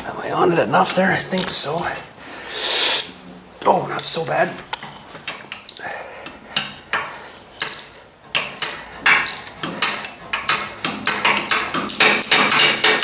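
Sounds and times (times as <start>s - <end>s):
ratcheting wrench clicking: 6.9s - 13.0s.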